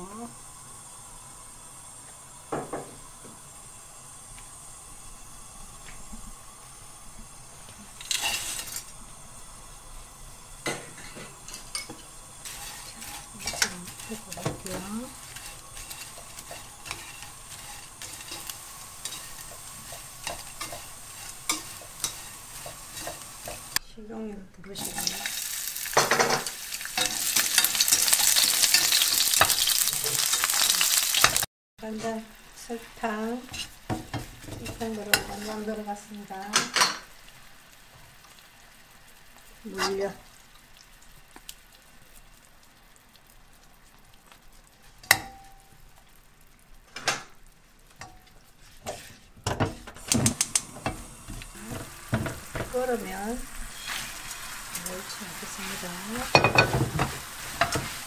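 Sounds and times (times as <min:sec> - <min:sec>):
garlic sizzling in oil: 0:00.0 - 0:58.0
kitchenware clinks and knocks: 0:26.0 - 0:26.5
chopsticks clicking against pan: 0:50.1 - 0:50.7.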